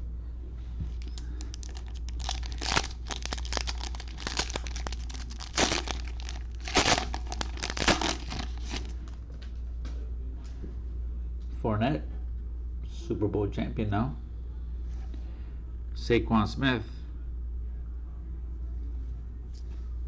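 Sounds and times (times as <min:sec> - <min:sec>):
plastic wrapper tearing and crinkling: 0:01.0 - 0:09.1.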